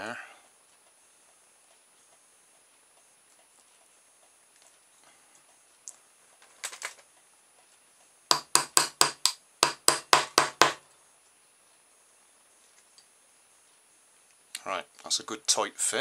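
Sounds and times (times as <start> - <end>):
sharp knocks on wooden desk: 8.3 - 10.8.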